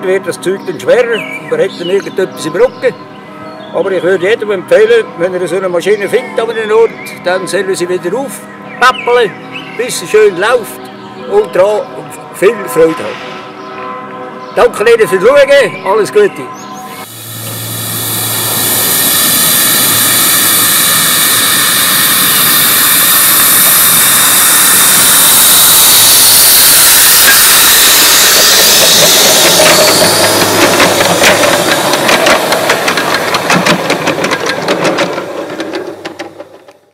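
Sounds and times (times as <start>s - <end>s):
steam hissing: 16.9s - 36.5s
steam locomotive exhaust beats: 16.9s - 36.9s.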